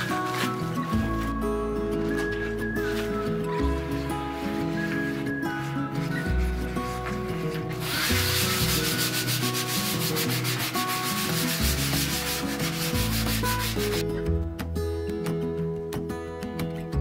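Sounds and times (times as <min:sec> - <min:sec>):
plastic wrap scrubbing steel sink: 0:00.0 - 0:01.4, 0:02.0 - 0:14.0.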